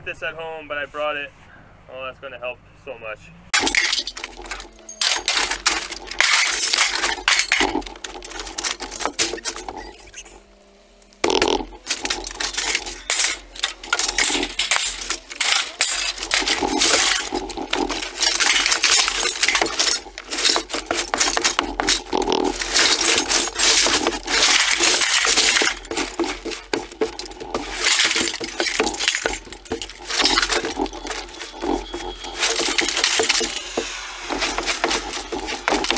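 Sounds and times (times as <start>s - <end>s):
broom scraping over boards: 3.6s - 9.9s, 11.6s - 35.9s
sheet steel scraps clattering: 3.6s - 10.1s, 11.7s - 35.9s.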